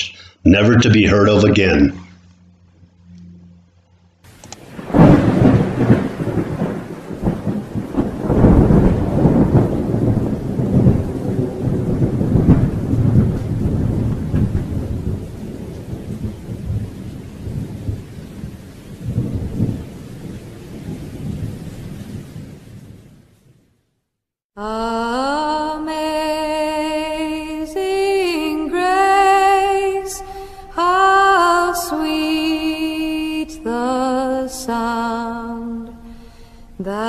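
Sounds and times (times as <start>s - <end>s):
rain hissing: 4.3s - 23.4s, 29.0s - 31.4s
thunder cracking and rumbling: 4.3s - 23.4s.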